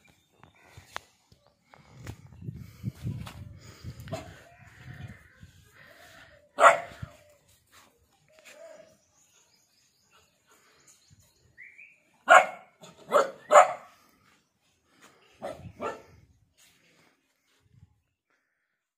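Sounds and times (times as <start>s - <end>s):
dog barking: 6.6s - 7.0s, 12.2s - 13.9s, 15.4s - 16.1s.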